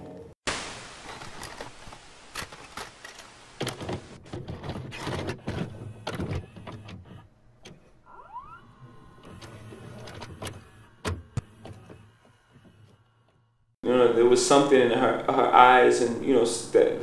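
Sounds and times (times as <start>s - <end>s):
hiss: 0.5s - 3.8s
cassette mechanism clicks and clunks: 2.4s - 8.0s, 9.2s - 12.2s.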